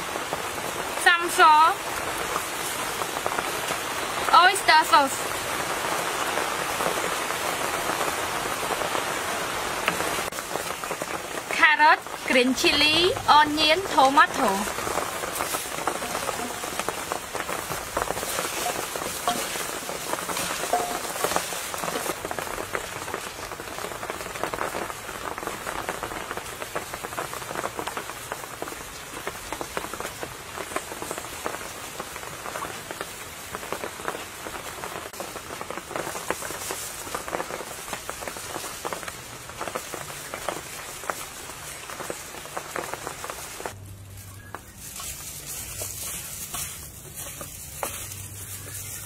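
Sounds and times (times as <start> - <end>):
gloved hands squelching wet chicken: 44.2 - 49.0.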